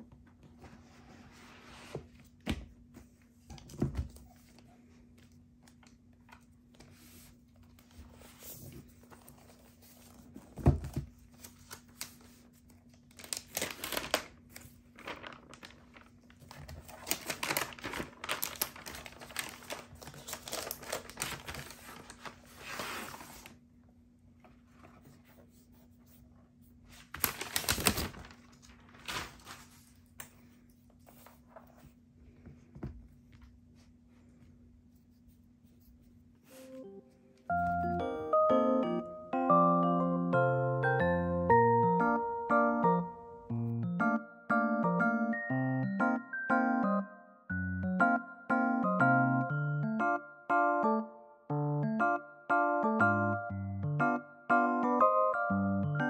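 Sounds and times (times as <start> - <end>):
paper crinkling and tearing: 11.2 - 23.6, 26.9 - 30.2.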